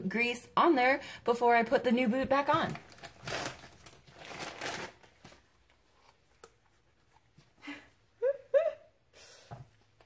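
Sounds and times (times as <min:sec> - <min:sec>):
plastic bag crinkling: 0:02.6 - 0:05.5.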